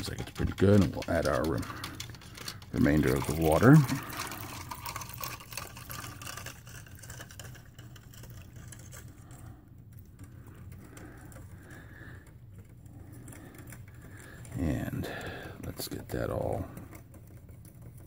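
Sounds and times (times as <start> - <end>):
water pouring into plastic cup: 0.0 - 11.8
spoon stirring against cup: 0.0 - 18.0.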